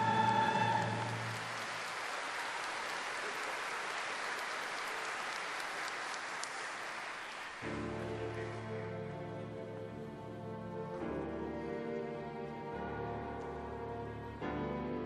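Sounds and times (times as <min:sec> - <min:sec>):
choir and orchestra music: 0:00.0 - 0:01.6, 0:07.6 - 0:15.0
congregation applauding: 0:00.0 - 0:08.7.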